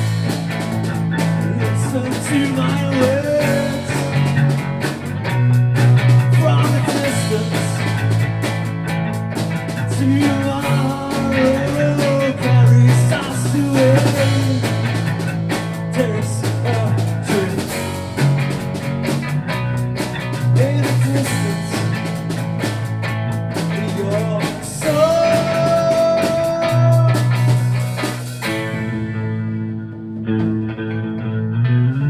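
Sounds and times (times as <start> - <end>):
drum kit: 0.0 - 31.3
bass guitar: 0.0 - 32.0
electric guitar: 0.0 - 32.0
man singing lead vocal: 1.3 - 4.4, 6.2 - 8.2, 9.8 - 18.0, 20.4 - 22.1, 23.6 - 27.7.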